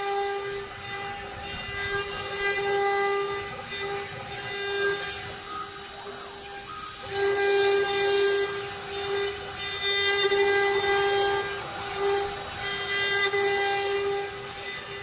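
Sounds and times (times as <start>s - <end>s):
router bit cutting wood with hiss: 0.0s - 15.0s
router spindle whining: 0.0s - 15.0s.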